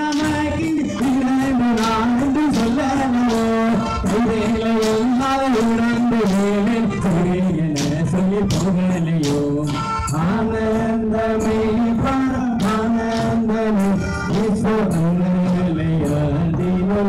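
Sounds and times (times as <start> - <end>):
man singing: 0.0 - 17.0
percussion with sharp strikes: 0.0 - 17.0.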